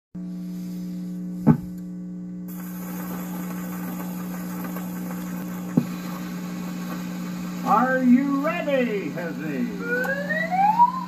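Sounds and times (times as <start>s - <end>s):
amplifier electrical hum: 0.2s - 11.0s
record surface hiss: 0.2s - 11.0s
pickup thump on record: 1.4s - 1.8s.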